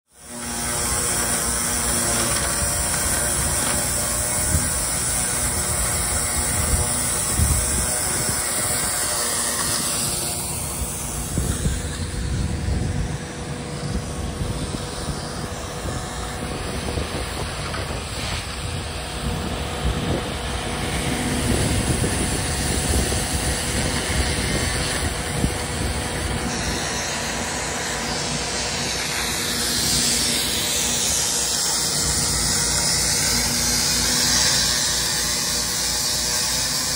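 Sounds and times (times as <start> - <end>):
high-pressure water spray hissing: 0.1 - 12.5, 13.5 - 36.9
engine running: 0.1 - 36.9.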